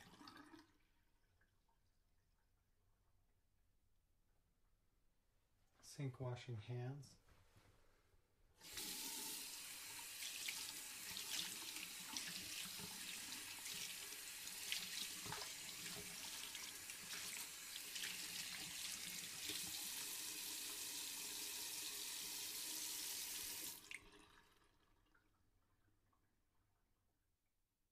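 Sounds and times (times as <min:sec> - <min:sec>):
tap water splashing on hands: 0:14.6 - 0:18.8.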